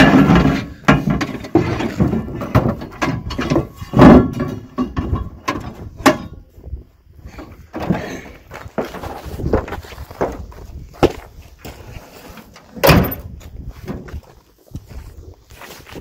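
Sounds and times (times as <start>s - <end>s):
metal base knocking and scraping: 0.0s - 6.5s.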